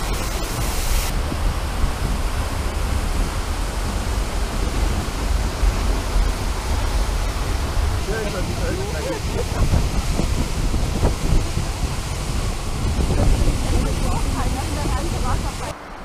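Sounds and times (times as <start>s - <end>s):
bright hiss: 0.0s - 1.2s
waterfall rushing: 0.0s - 16.0s.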